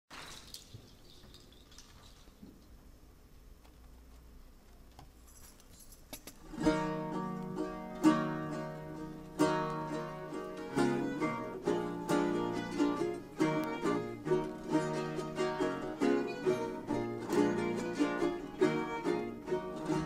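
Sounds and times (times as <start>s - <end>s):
string ensemble playing: 6.6s - 20.0s
strummed guitar chords: 6.6s - 20.0s.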